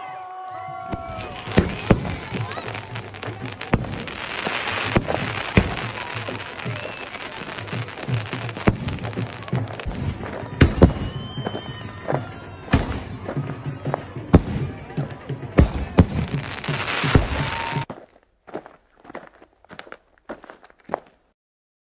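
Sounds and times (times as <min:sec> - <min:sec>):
crackling hiss of fireworks: 0:00.2 - 0:17.9
fireworks bangs: 0:00.7 - 0:18.0.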